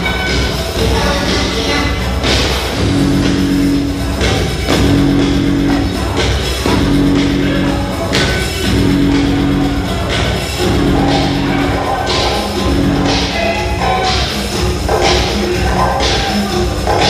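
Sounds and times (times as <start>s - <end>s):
upbeat dance music: 0.0s - 17.0s
held low note: 2.8s - 16.0s.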